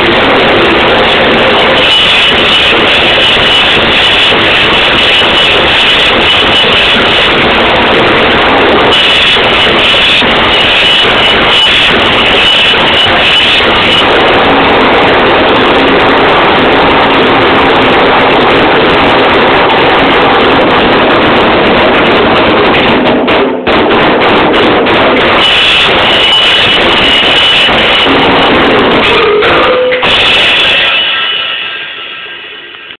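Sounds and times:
drum kit played fast: 0.0 - 32.6
cymbals crashing: 0.0 - 33.0.

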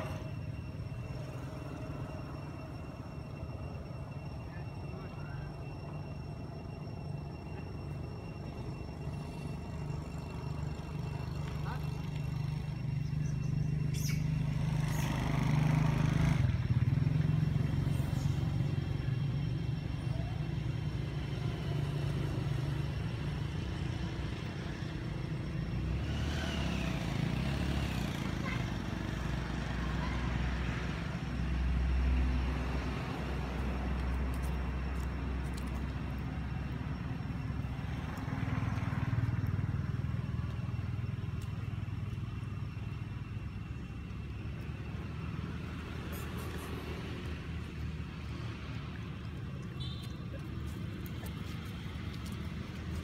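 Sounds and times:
vehicle engines rumbling: 0.0 - 53.0
high chirping calls: 12.9 - 15.2.

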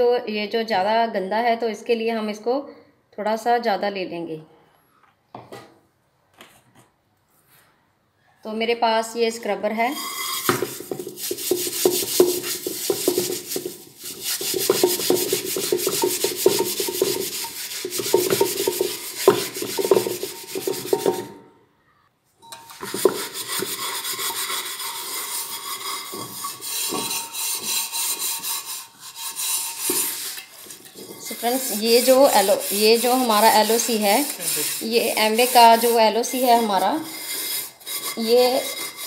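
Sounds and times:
scrubber scouring a pot: 9.9 - 21.4, 22.5 - 39.0.

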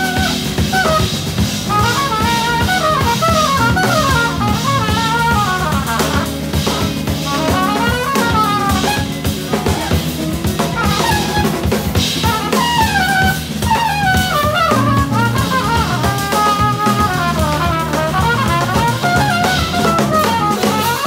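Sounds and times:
drum kit: 0.0 - 21.0
electric bass: 0.0 - 21.0
funk band playing: 0.0 - 21.0
trumpet solo: 0.0 - 21.0.

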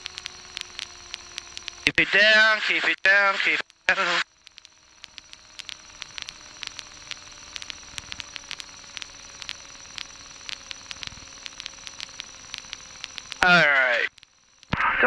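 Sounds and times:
static crackles: 0.0 - 15.0
intercom hiss: 1.9 - 4.2, 13.4 - 14.1, 14.7 - 15.0.

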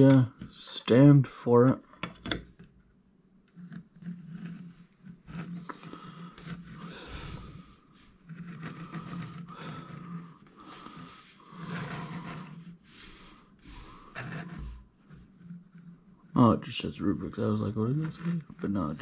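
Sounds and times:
plastic cube clicking and rubbing: 3.5 - 7.6, 8.2 - 12.8.

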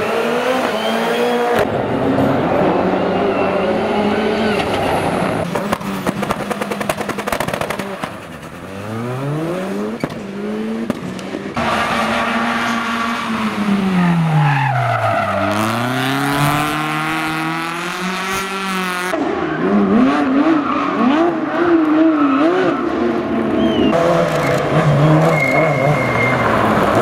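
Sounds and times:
rally car engines revving: 0.0 - 27.0
tyres sliding on tarmac: 25.3 - 27.0.

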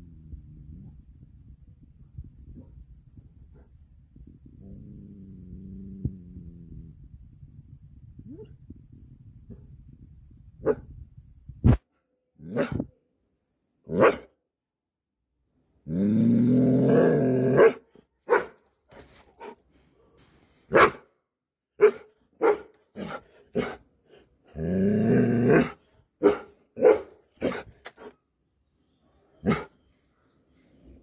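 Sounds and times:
dog barking: 12.5 - 12.8, 13.9 - 14.3, 17.6 - 18.6, 20.7 - 21.0, 21.8 - 23.8, 25.6 - 27.6, 29.4 - 29.7.

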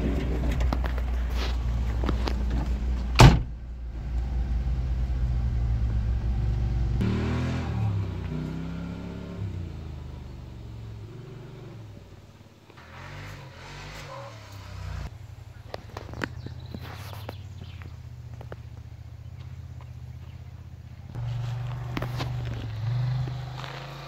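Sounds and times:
engine idling and revving: 0.0 - 24.0
vehicle door slamming: 3.0 - 3.6.

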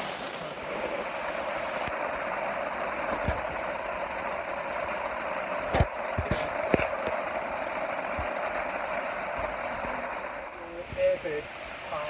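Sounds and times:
rain on tent fabric: 0.0 - 10.9.

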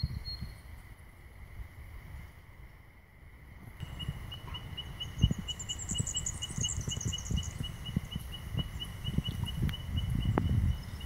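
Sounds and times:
wind and handling on microphone: 3.4 - 11.0
bird twittering: 3.8 - 11.0
regular high chirping: 3.8 - 11.0.

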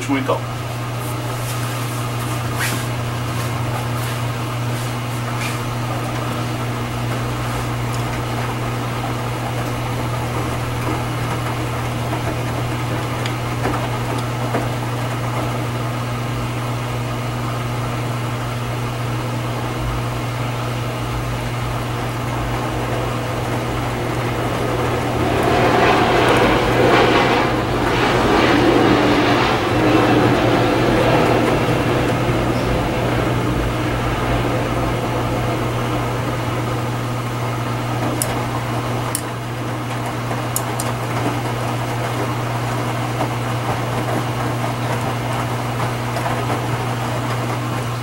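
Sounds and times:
water running in: 0.0 - 28.0
washing machine low hum: 0.0 - 48.0.

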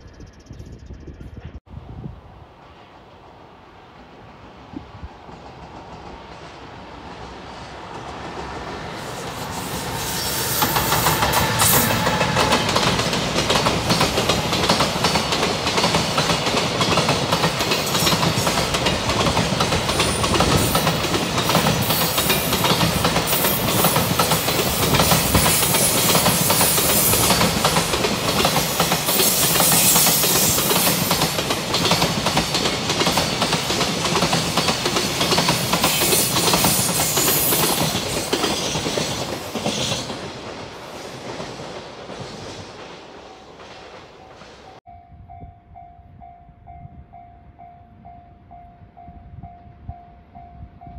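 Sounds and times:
train wheels clattering on rail: 4.8 - 44.8.

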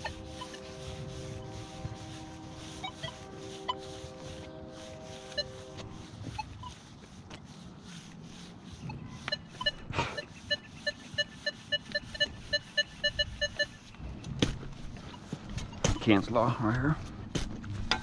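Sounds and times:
metal detector beeps: 0.0 - 0.8, 2.8 - 3.8, 5.3 - 5.6, 6.3 - 6.8, 8.8 - 14.0, 15.0 - 16.4.

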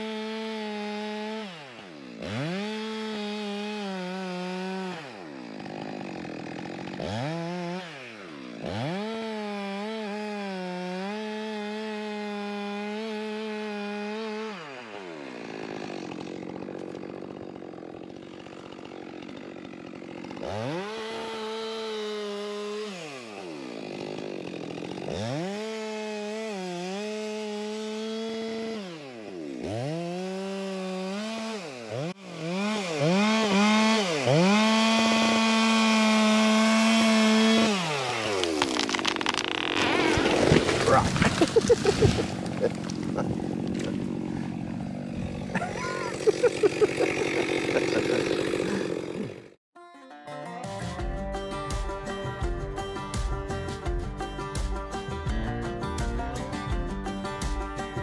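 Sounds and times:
chainsaw revving and cutting: 0.0 - 49.6.

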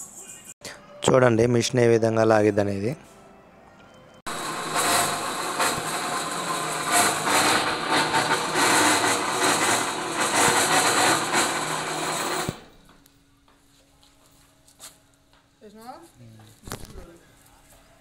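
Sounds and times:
electric hoist motor winding: 4.3 - 12.8.

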